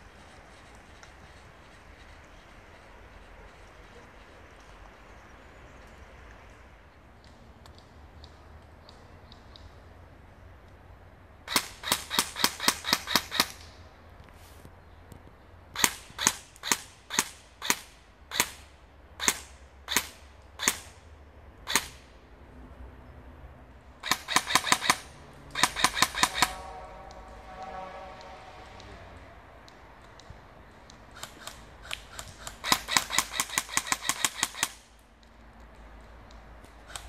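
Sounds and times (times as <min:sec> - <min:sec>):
airsoft gun shots: 0:11.5 - 0:13.6, 0:15.8 - 0:21.0, 0:21.6 - 0:22.1, 0:24.0 - 0:26.7, 0:31.2 - 0:34.9.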